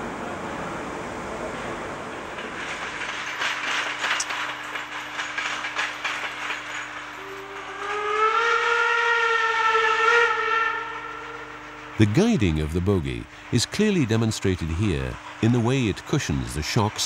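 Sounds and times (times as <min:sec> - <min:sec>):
steam locomotive chuffing and clatter: 0:00.1 - 0:17.0
steam whistle: 0:07.2 - 0:12.0.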